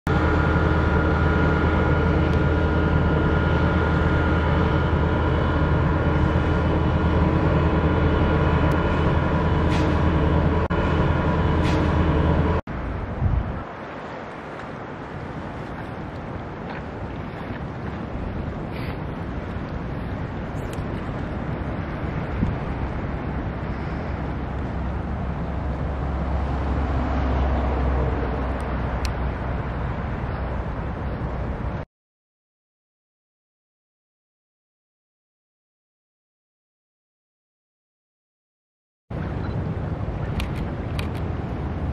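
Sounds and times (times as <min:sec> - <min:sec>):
diesel locomotive engine humming: 0:00.1 - 0:31.8, 0:39.1 - 0:41.9
wind noise: 0:00.1 - 0:31.8.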